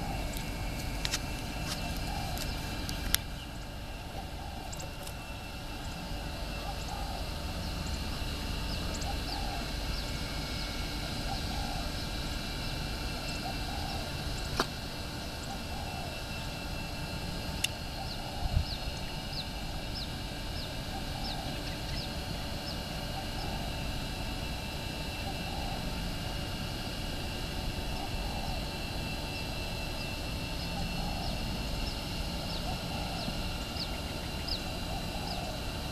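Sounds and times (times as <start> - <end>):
steady low rumble: 0.0 - 24.6.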